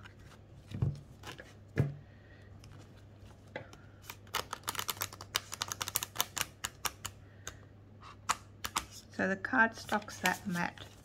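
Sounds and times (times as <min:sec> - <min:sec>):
cards shuffling clicks: 0:04.0 - 0:07.6, 0:08.2 - 0:09.0.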